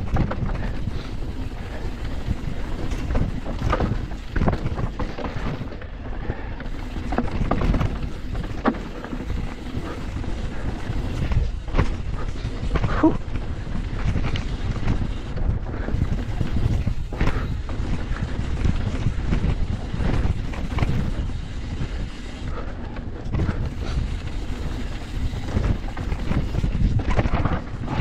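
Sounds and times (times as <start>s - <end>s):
bike knocking and rattling: 0.0s - 28.0s
tyres rumbling over dirt: 0.0s - 28.0s
wind buffeting microphone: 0.0s - 28.0s.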